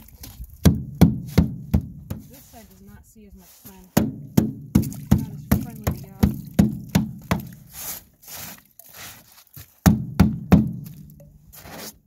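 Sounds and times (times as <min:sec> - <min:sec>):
tool striking ice on metal boat: 0:00.6 - 0:02.4, 0:03.9 - 0:08.0, 0:09.8 - 0:11.3
rasping scrapes: 0:11.5 - 0:12.0.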